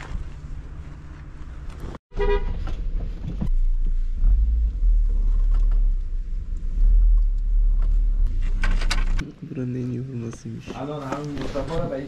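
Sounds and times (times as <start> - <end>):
car engine rumble: 0.0 - 10.8
car horn toot: 2.1 - 2.6.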